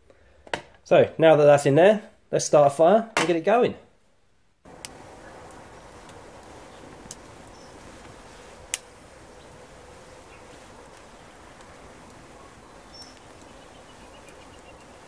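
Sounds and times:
burning wood popping: 4.6 - 15.0
campfire hissing: 4.6 - 15.0.

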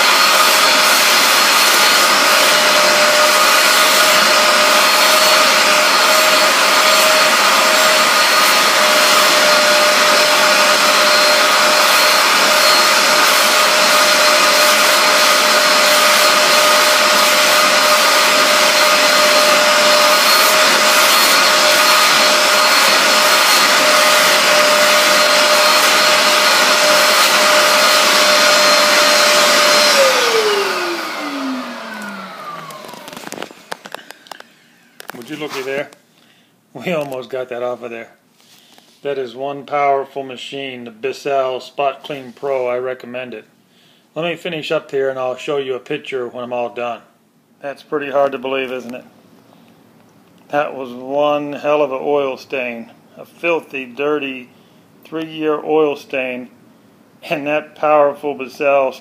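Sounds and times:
carpet cleaner suction and whine: 0.0 - 36.0.

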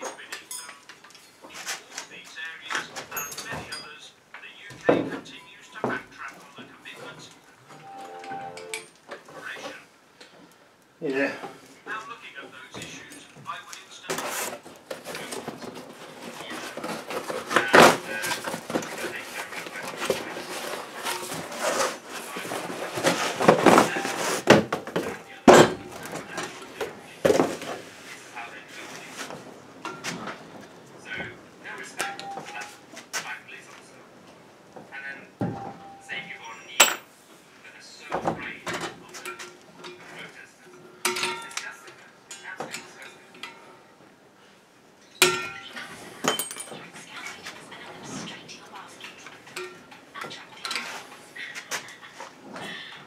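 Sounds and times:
cardboard box rustling and scraping: 14.1 - 24.7.

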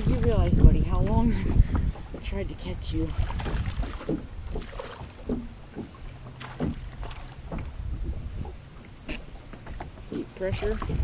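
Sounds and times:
wind buffeting microphone: 0.0 - 8.7, 9.7 - 11.0
water lapping against kayak hull: 0.0 - 11.0
small knocks and splashes: 3.0 - 7.8.

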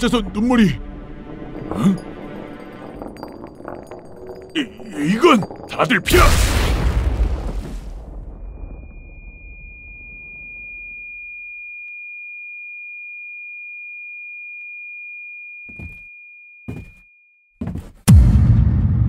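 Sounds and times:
loud thump with heavy rumble: 18.1 - 19.0.

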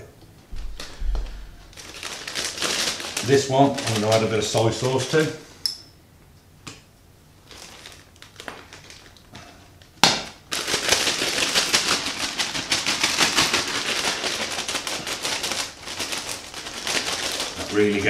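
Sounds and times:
plastic bag shaken: 0.6 - 5.4, 7.5 - 9.2, 10.5 - 18.0.

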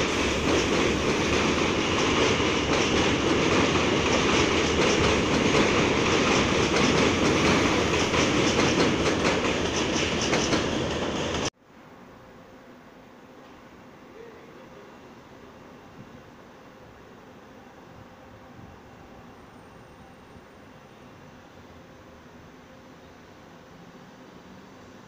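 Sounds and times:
train rumbling on steel track: 0.0 - 11.5, 13.4 - 25.0
wheels clattering over rails: 0.4 - 11.5
faint hiss: 11.6 - 25.0.

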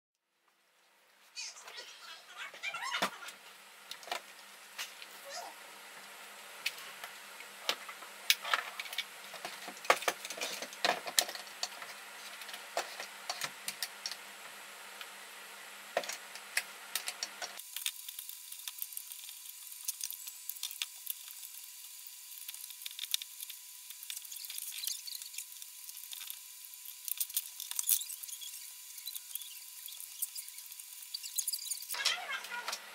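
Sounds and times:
plastic parts clicking and rattling: 8.4 - 14.2, 22.4 - 32.0.

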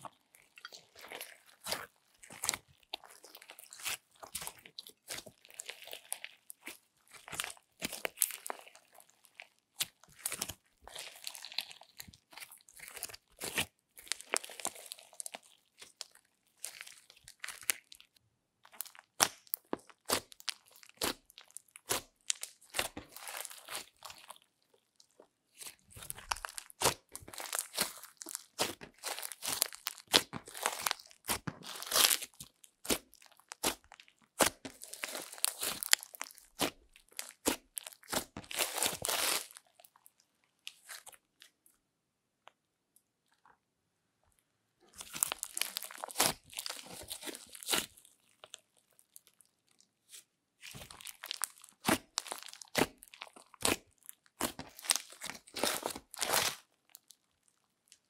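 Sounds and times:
sticky slime squelches: 0.0 - 58.0.

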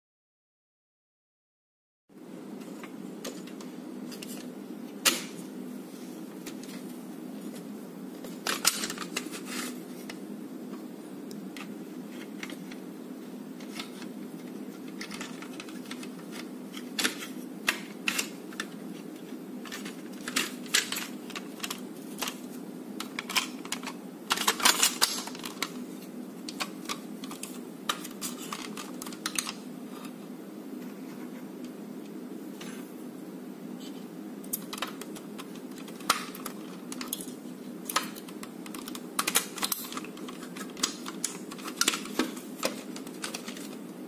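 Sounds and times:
steady low hum: 2.1 - 44.0
plastic parts clicking: 8.4 - 10.2, 13.6 - 18.8, 19.6 - 25.8, 26.5 - 30.2, 34.5 - 43.8.

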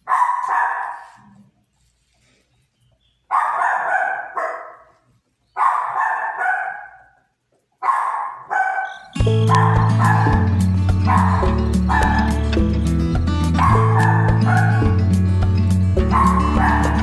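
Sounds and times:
dog barking: 0.0 - 1.5, 3.3 - 12.6, 13.4 - 15.0, 15.9 - 17.0
background music: 9.2 - 17.0.

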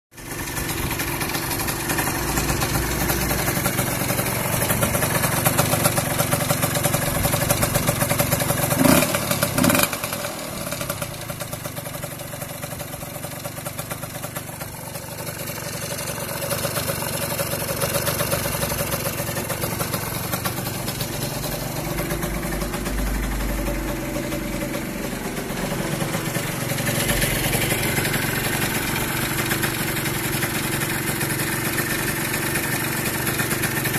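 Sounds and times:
two-stroke scooter engine idling: 0.1 - 33.9.

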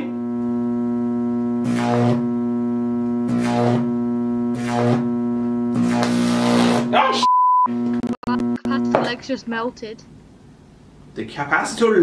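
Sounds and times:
electric arc buzzing: 0.0 - 9.6.

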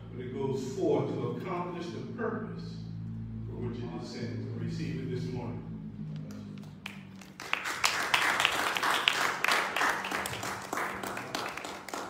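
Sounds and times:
people clapping: 6.2 - 12.0.

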